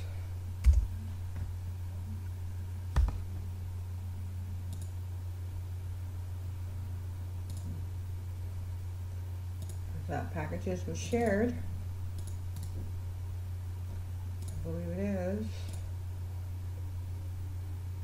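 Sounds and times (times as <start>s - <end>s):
steady low hum: 0.0s - 18.0s
computer mouse clicks: 4.7s - 5.0s, 7.5s - 7.7s, 9.6s - 9.8s, 12.2s - 12.8s, 14.4s - 14.6s.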